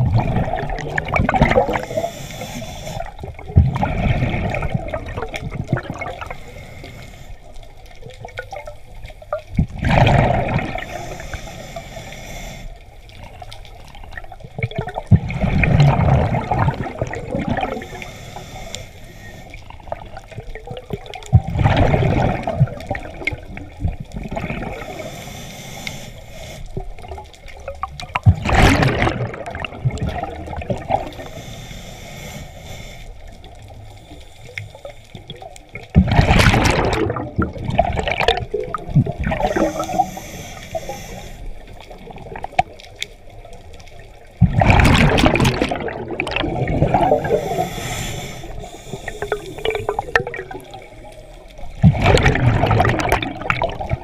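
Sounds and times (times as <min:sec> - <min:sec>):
exhaled bubbles underwater: 0:00.0 - 0:11.5, 0:13.0 - 0:18.7, 0:19.3 - 0:25.2, 0:26.7 - 0:31.5, 0:33.2 - 0:54.0
regulator hiss: 0:01.7 - 0:03.2, 0:10.8 - 0:12.8, 0:17.8 - 0:19.5, 0:24.9 - 0:26.8, 0:31.1 - 0:35.1, 0:39.4 - 0:41.7, 0:47.0 - 0:50.2.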